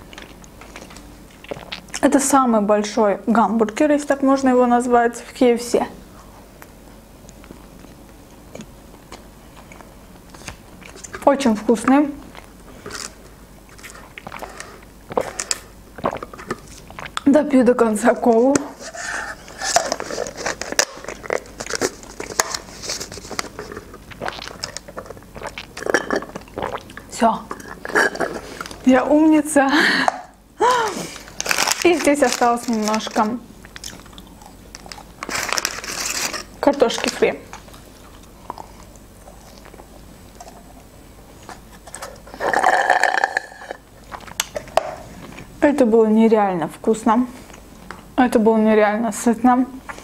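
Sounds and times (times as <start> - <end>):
chewing fries: 0.0 - 2.1, 12.2 - 17.3, 19.0 - 28.8, 31.1 - 45.5
airy slurps: 13.7 - 17.2, 18.8 - 28.8.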